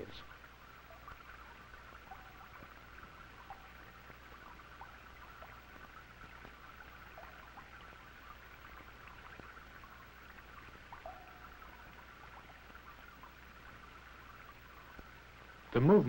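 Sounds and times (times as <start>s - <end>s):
film soundtrack hiss and hum: 0.0s - 16.0s
small crackles and clicks: 0.0s - 16.0s.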